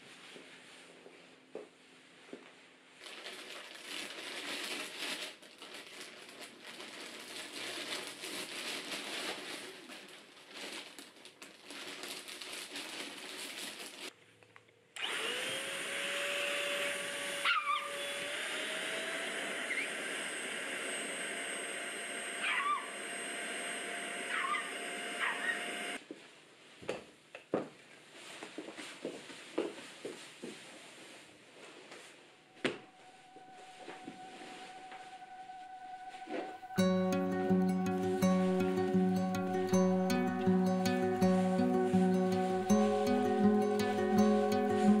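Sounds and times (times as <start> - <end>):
small electric motor whine: 15.0 - 26.0
dog whining: 17.4 - 18.2, 22.4 - 23.0, 24.2 - 26.0.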